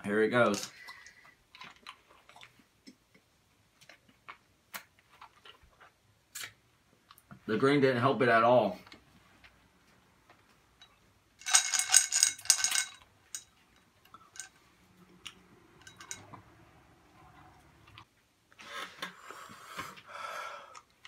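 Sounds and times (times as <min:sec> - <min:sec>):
hard candies rattling against glass: 0:11.4 - 0:14.6.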